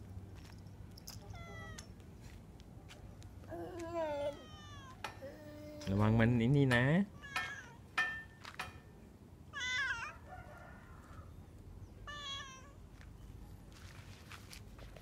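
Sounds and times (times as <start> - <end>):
cat meowing: 1.3 - 1.9, 3.8 - 5.9, 7.1 - 7.8, 9.5 - 10.2, 12.0 - 12.8.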